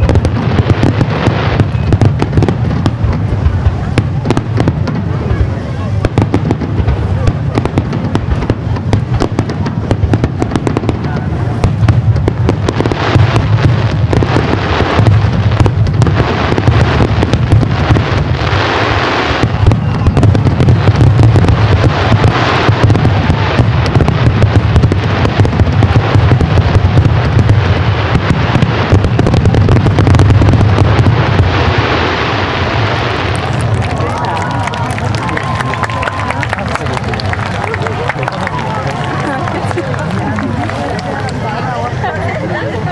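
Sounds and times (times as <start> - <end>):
fireworks bangs and crackles: 0.0 - 42.9
deep rumble: 19.4 - 41.6.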